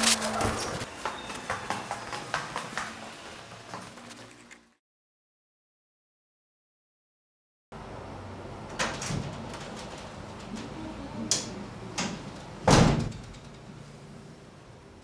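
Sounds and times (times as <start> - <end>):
door closing thud: 8.7 - 9.7, 12.0 - 13.5.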